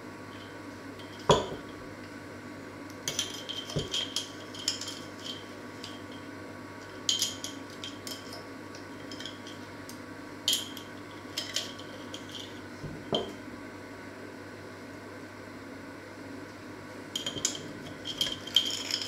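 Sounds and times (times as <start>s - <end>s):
metal spoon clinking on glass jar: 17.2s - 19.0s.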